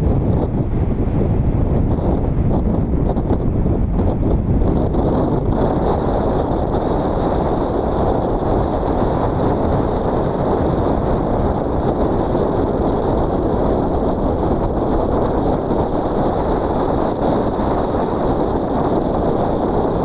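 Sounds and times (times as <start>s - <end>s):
ocean surf rushing: 0.0s - 20.0s
wind noise on microphone: 0.0s - 20.0s.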